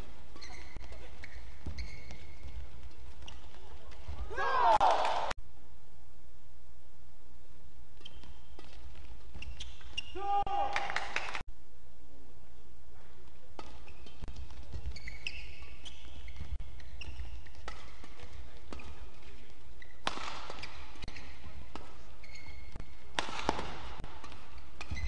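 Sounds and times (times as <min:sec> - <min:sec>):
shoes squeaking on court: 0:00.0 - 0:04.4, 0:08.0 - 0:10.2, 0:13.6 - 0:25.0
rackets hitting shuttlecock: 0:08.0 - 0:10.2, 0:13.0 - 0:25.0.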